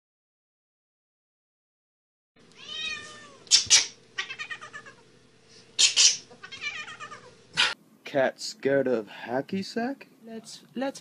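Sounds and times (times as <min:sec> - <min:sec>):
cat yowling: 0:02.6 - 0:05.0, 0:05.8 - 0:07.8.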